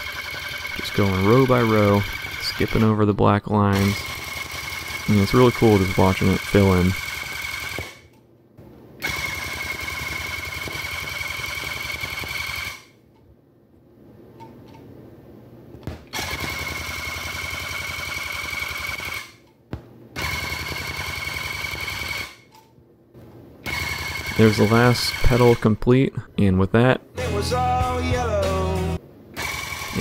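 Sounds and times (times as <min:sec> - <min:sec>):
tufting gun high whine: 0:00.0 - 0:03.1, 0:03.7 - 0:08.1, 0:23.6 - 0:25.7.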